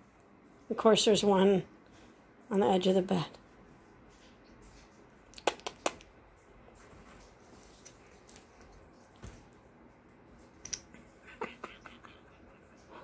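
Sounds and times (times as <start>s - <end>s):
rustling of fabric: 6.4s - 9.7s.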